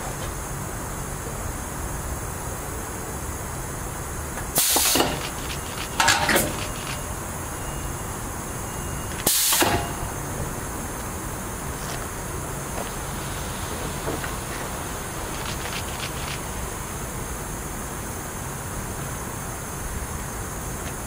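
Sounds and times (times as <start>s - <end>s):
compressed air hiss: 4.5s - 6.7s, 9.2s - 10.2s
clicks and clanks: 4.6s - 7.1s, 9.2s - 10.0s.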